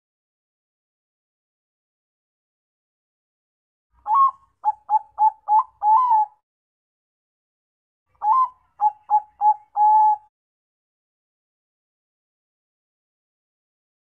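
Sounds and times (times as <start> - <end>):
dove cooing: 4.0 - 6.4, 8.2 - 10.3.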